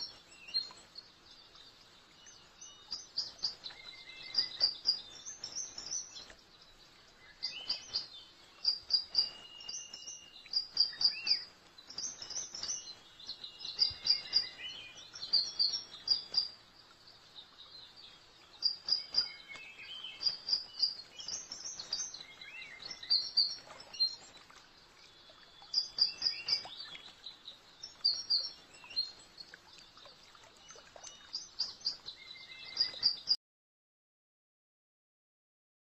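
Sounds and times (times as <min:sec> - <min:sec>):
faint steady hiss: 0:00.0 - 0:33.3
birds chirping: 0:00.0 - 0:33.4.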